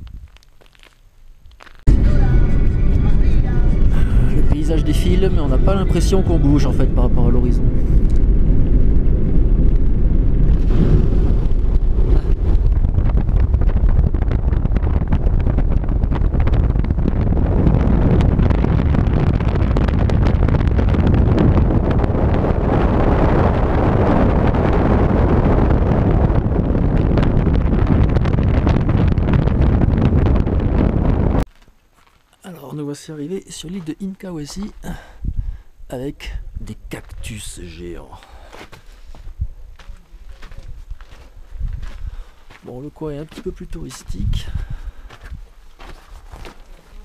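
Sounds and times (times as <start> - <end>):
wind buffeting the microphone: 0.0 - 31.5, 33.7 - 47.0
vehicle engine and tyre noise: 7.3 - 14.3.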